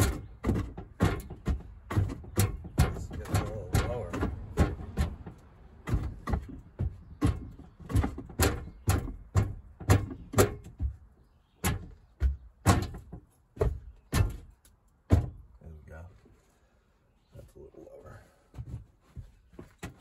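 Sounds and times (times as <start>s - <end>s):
sharp mechanical clicks and knocks: 0.0s - 10.9s.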